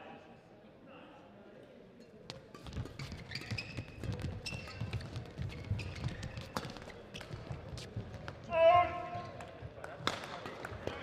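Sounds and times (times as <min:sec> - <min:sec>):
shoes squeaking: 0:02.3 - 0:08.5.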